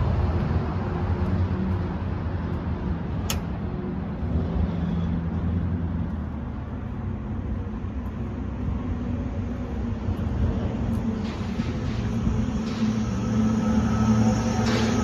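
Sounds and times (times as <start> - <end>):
sharp click: 3.2 - 3.6.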